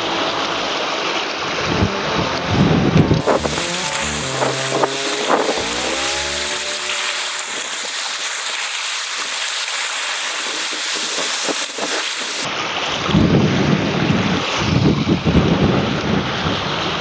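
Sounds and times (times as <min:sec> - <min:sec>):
deep surf rumble: 0:00.0 - 0:08.2
sea surf washing: 0:00.0 - 0:12.6.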